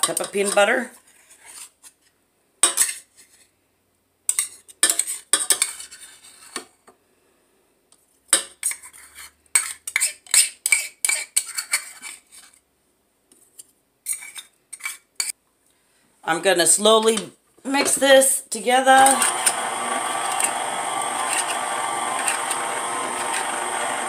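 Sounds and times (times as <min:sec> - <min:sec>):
metal utensil scraping bowl: 0:00.0 - 0:01.7, 0:04.3 - 0:06.6, 0:08.6 - 0:12.5, 0:18.9 - 0:24.0.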